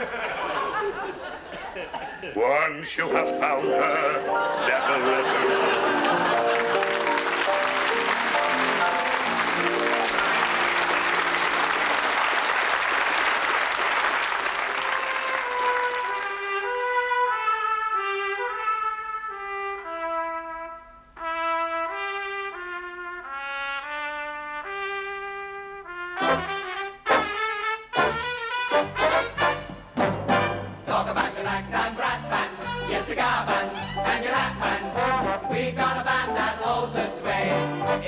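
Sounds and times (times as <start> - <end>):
brass melody: 3.0 - 12.1, 14.7 - 38.0
orchestral music: 3.0 - 12.2, 25.9 - 38.0
audience applauding: 4.6 - 16.9.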